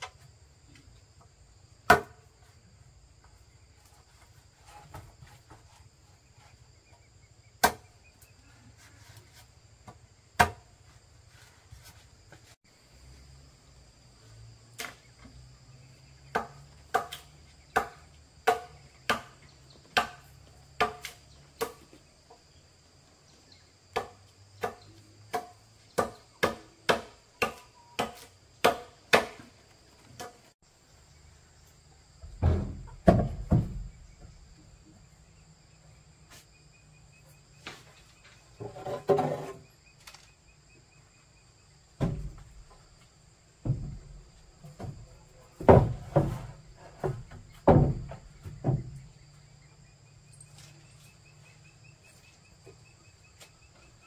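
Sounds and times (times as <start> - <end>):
insects droning: 0.0 - 54.0
hand tool striking wood: 1.9 - 2.3, 7.6 - 7.9, 9.8 - 10.7, 16.3 - 21.9, 23.9 - 30.5, 45.6 - 49.0.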